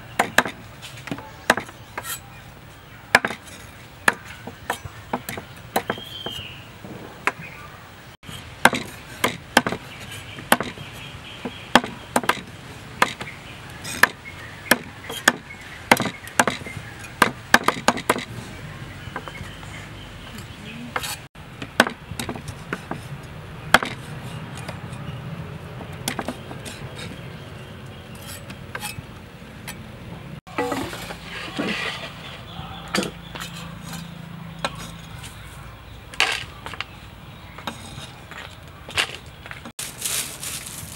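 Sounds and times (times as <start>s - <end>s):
cleaver chopping on wooden block: 0.2s - 2.2s, 3.1s - 6.5s, 8.6s - 10.8s, 11.4s - 13.3s, 13.9s - 18.3s, 21.0s - 23.0s, 23.7s - 24.0s.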